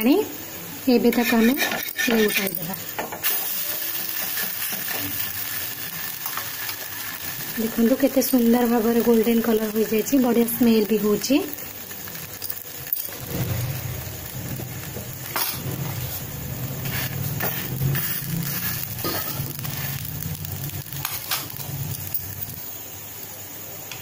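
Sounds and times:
frying in oil sizzling: 0.0s - 24.0s
spatula scraping a pan: 1.1s - 2.6s, 16.8s - 19.9s.

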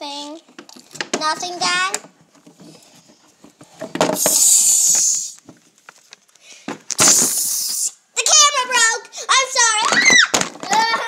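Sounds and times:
hissing rubbing over microphone: 4.1s - 5.4s, 7.0s - 8.0s.

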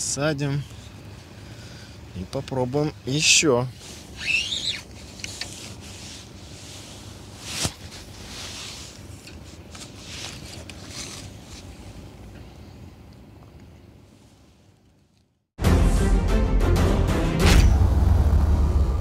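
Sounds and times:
fishing tackle rustling: 4.0s - 11.9s.

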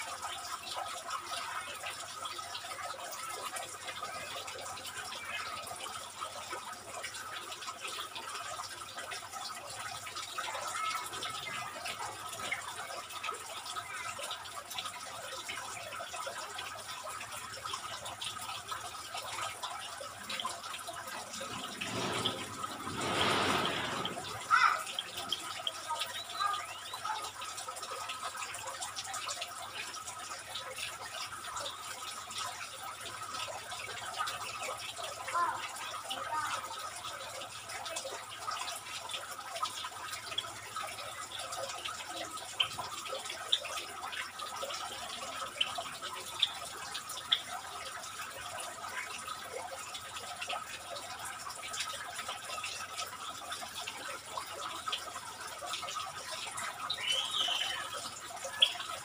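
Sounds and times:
small birds chirping: 56.5s - 59.0s.

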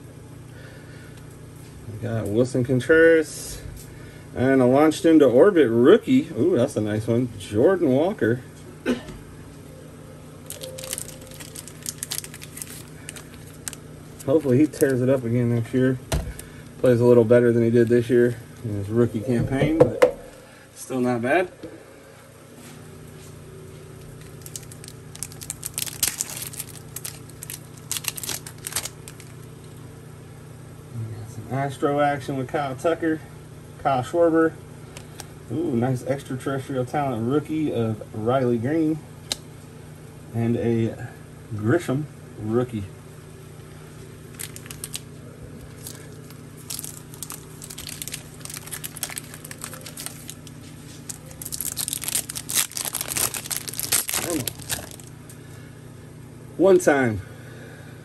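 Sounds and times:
steady low hum: 0.0s - 58.0s
foil wrapper crinkling and tearing: 10.4s - 15.2s, 24.0s - 29.5s, 44.3s - 55.1s.

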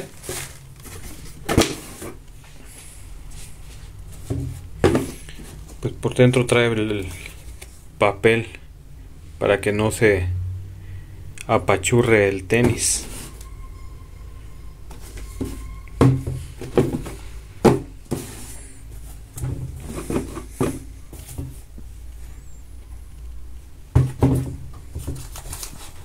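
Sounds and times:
shoes knocking on cardboard box: 4.2s - 5.2s, 23.9s - 25.2s
low hum: 13.0s - 17.6s.

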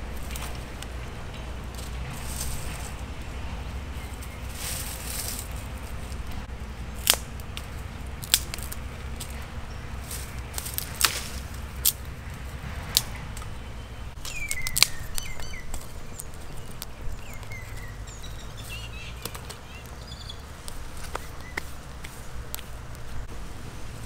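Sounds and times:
low outdoor rumble: 0.0s - 24.0s
small birds chirping: 0.0s - 24.0s
sharp snaps and clicks: 6.2s - 9.5s, 10.1s - 13.5s, 14.2s - 23.2s.

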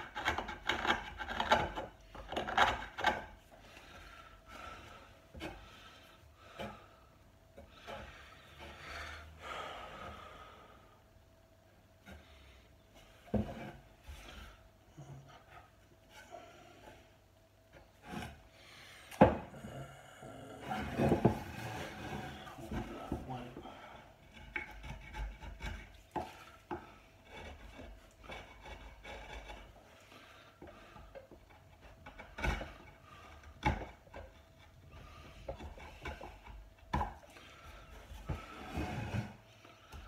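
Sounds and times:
carving tool scraping wood: 0.0s - 4.0s, 20.7s - 40.0s.

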